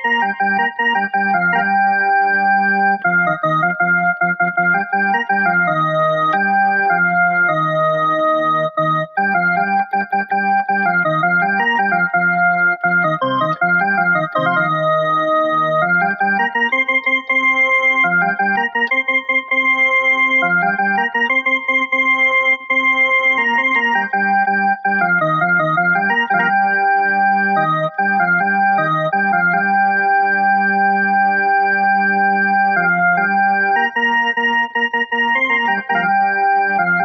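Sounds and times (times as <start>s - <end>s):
electronic keyboard organ melody: 0.0s - 37.0s.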